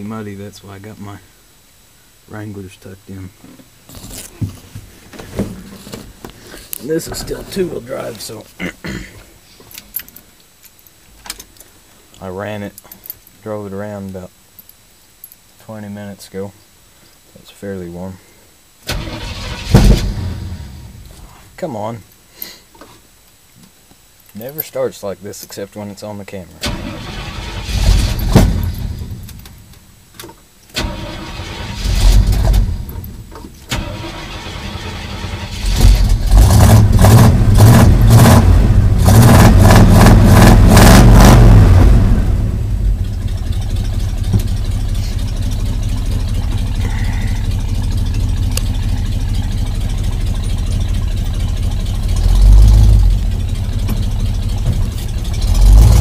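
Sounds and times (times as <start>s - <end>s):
truck engine starting and idling: 18.8s - 21.1s, 26.6s - 29.6s, 30.7s - 56.0s.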